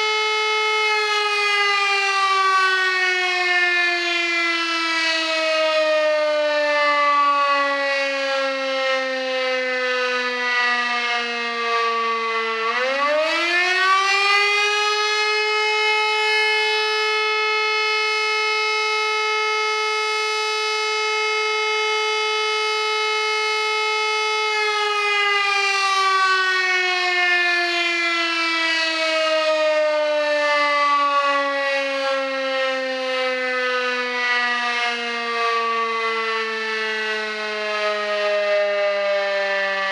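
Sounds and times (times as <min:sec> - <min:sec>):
electric motor siren wailing: 0:00.0 - 0:39.9.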